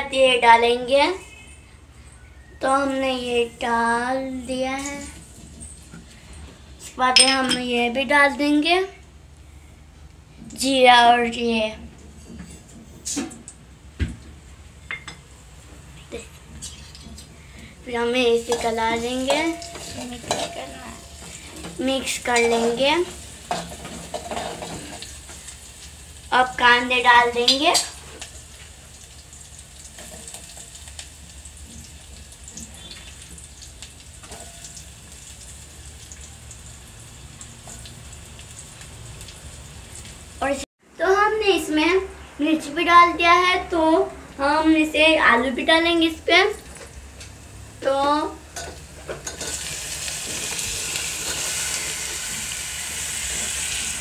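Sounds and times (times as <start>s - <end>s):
onions sizzling in hot oil: 17.8s - 40.6s, 47.4s - 54.0s.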